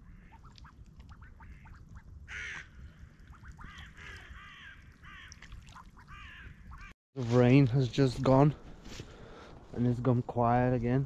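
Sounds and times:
ducks quacking: 0.0 - 6.9.

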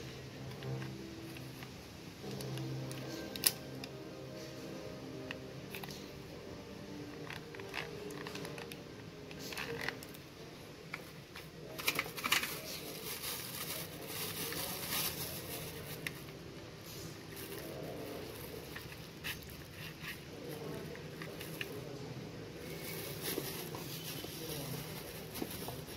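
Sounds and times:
plastic bag crinkling: 11.6 - 16.4, 17.2 - 21.9, 22.6 - 25.9.

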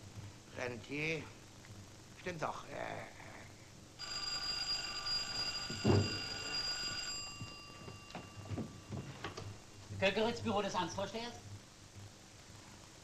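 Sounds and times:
telephone bell ringing: 4.0 - 9.6.

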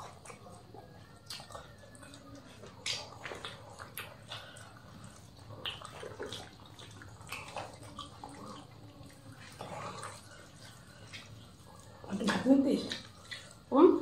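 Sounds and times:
fingers mashing wet food: 0.0 - 13.7
mouths chewing: 0.0 - 14.0.

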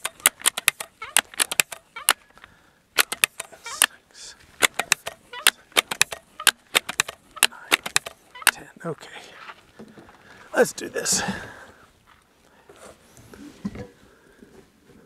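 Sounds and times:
air rifle pump lever clicking: 0.0 - 2.2, 3.0 - 3.9, 4.6 - 8.6.

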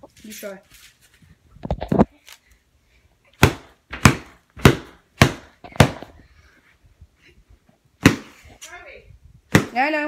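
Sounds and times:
club beating a pillow: 3.4 - 6.1, 8.0 - 8.4, 9.5 - 10.0.

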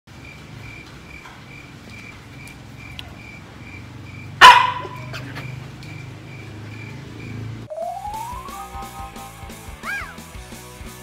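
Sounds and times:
puppy barking: 4.4 - 5.6.

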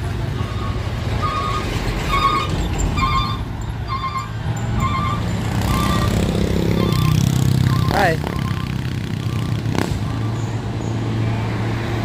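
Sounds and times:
vehicle reversing alarm beeping: 0.3 - 9.7.

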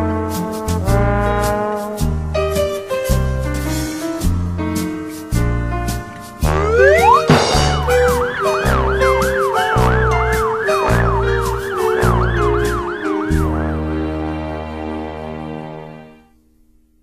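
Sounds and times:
dramatic music with low bass: 6.4 - 14.5
ambulance siren yelp: 6.5 - 14.0.

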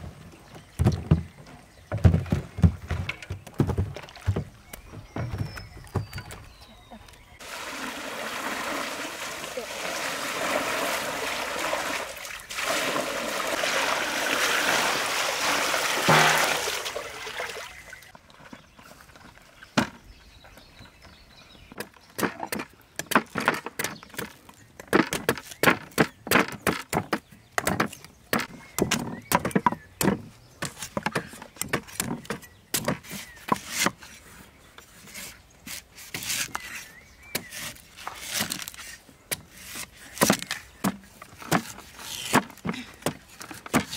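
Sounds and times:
cleavers chopping on wooden blocks: 0.7 - 6.4, 21.7 - 34.2, 35.1 - 43.9
water splashing over coconuts: 7.4 - 18.1.

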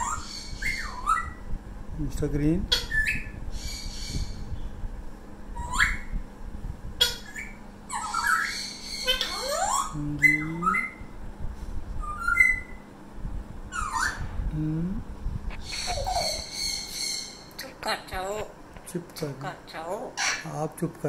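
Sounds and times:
parrot squawks and whistles: 0.0 - 1.4, 7.0 - 10.0, 12.0 - 12.8.

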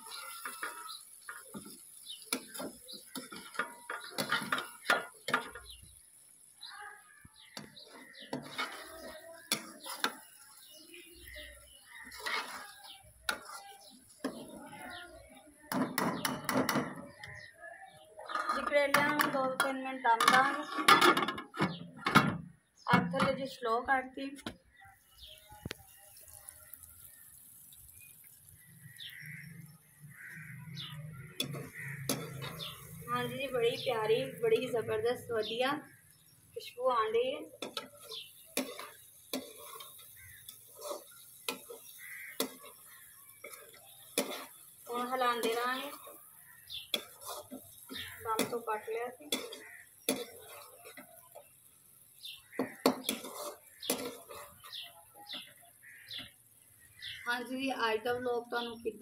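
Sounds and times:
metal spoon scraping a wok: 0.0 - 5.6, 7.8 - 10.7, 11.9 - 14.8, 18.2 - 21.6, 31.3 - 33.8, 37.6 - 54.9.

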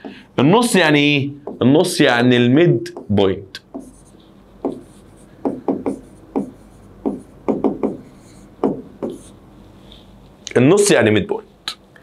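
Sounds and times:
pen strokes on whiteboard screen: 2.9 - 9.4.

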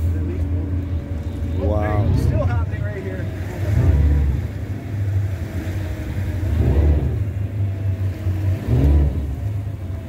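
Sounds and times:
boat engine humming: 0.0 - 10.0.

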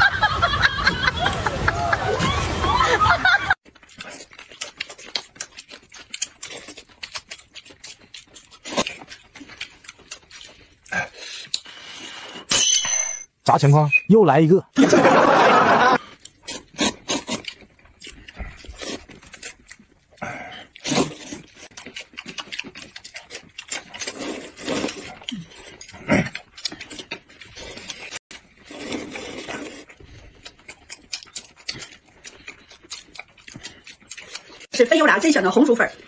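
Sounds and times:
person slurping noodles: 16.2 - 19.6, 20.2 - 30.7.

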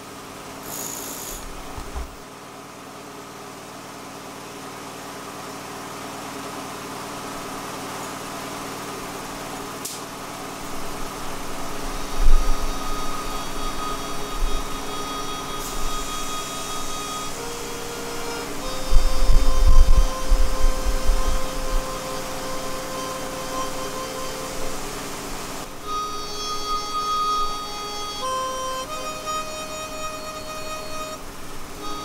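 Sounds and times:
air compressor humming: 0.4 - 2.3, 6.3 - 32.0
single click: 9.8 - 10.1.

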